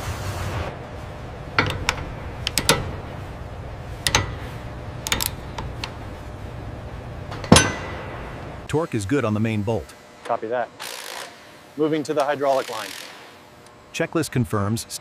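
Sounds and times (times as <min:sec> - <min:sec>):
low machinery hum: 0:00.0 - 0:15.0
wrench ratcheting: 0:01.6 - 0:03.0, 0:04.0 - 0:06.0, 0:10.8 - 0:11.3.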